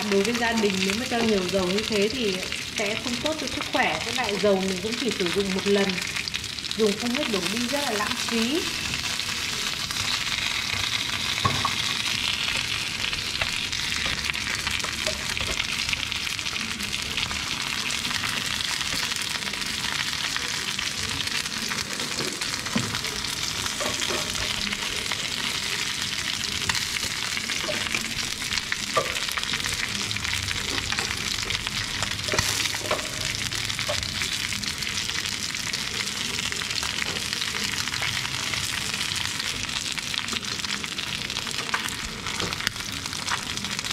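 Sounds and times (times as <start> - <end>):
fish sizzling in hot oil: 0.0 - 43.9.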